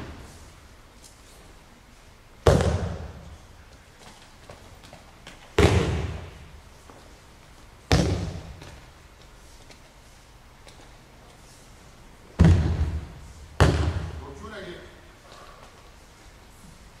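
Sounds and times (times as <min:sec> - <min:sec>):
body slapping on mats: 0:02.4 - 0:03.3, 0:04.0 - 0:07.0, 0:07.9 - 0:09.9, 0:12.4 - 0:14.2.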